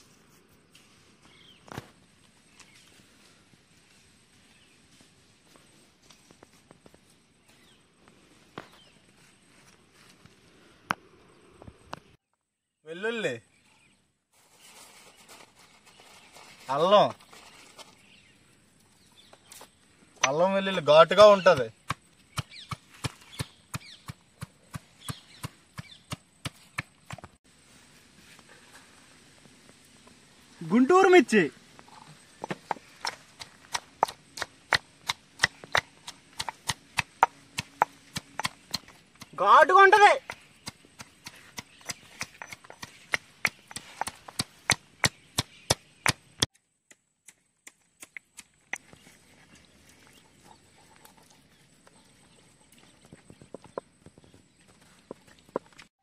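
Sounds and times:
pestle pounding spices: 33.0s - 39.4s.

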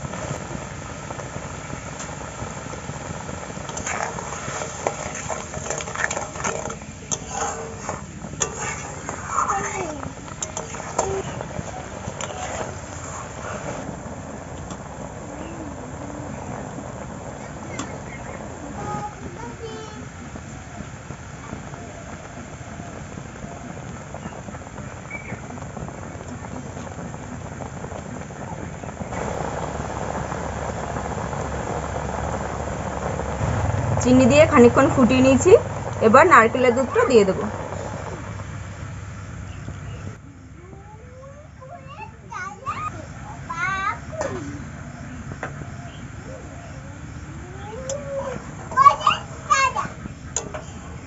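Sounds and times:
chutney bubbling and sizzling: 0.0s - 51.0s
metal spatula scraping a pan: 3.7s - 13.9s.

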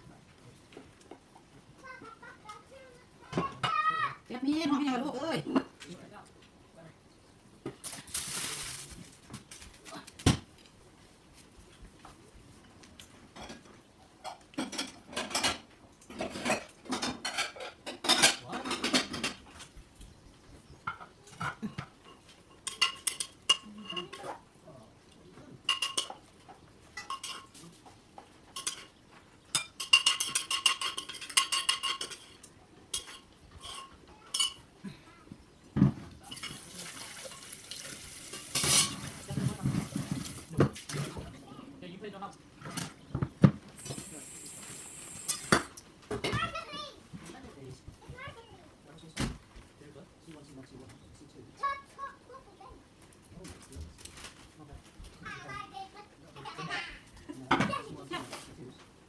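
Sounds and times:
metal clinking and clattering: 28.5s - 34.6s.

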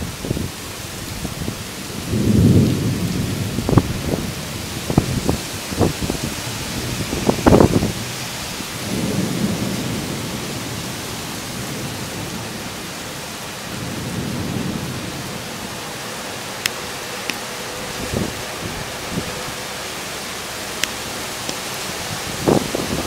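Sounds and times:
heavy rain pouring: 0.0s - 23.0s
thunder rolling: 1.2s - 12.8s, 21.6s - 23.0s.

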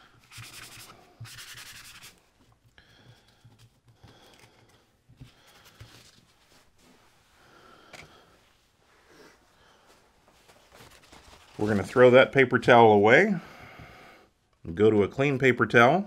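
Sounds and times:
dry scrubbing on paper towel: 0.3s - 2.2s.

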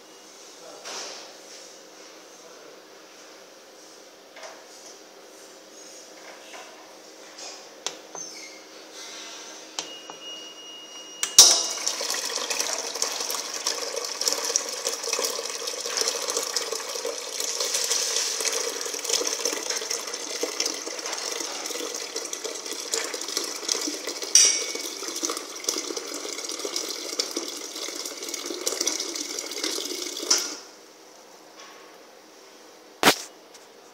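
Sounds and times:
oil trickling into plastic can: 11.7s - 30.6s.

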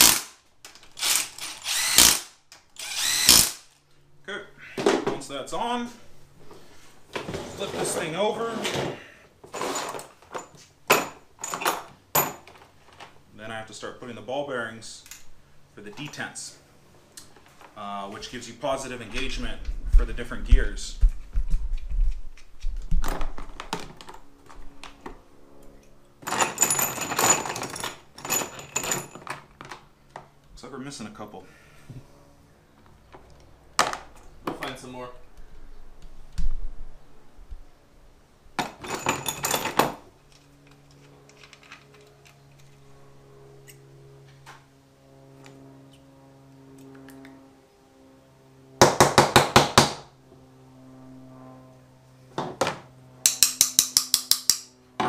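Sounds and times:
small steel parts clinking: 26.2s - 29.4s
loose metal parts rattling: 26.2s - 29.9s, 38.6s - 40.0s.

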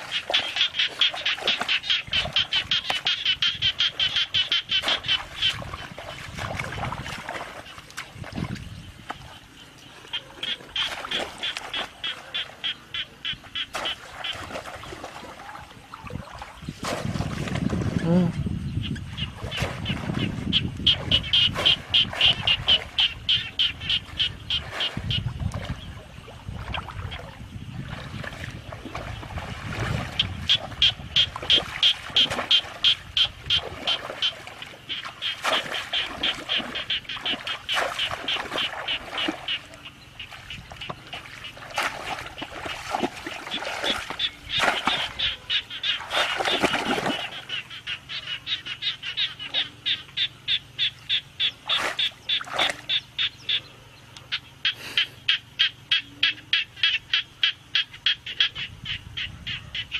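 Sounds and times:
rapid high-pitched animal calls: 0.0s - 5.7s, 42.2s - 53.7s.

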